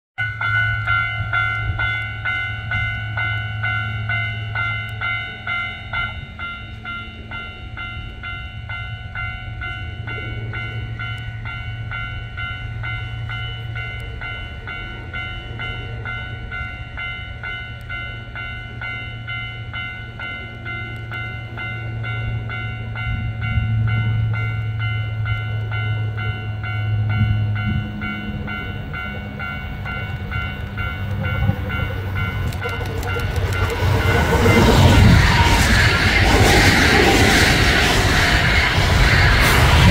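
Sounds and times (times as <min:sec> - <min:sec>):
electric train rumbling past: 0:00.2 - 0:39.9.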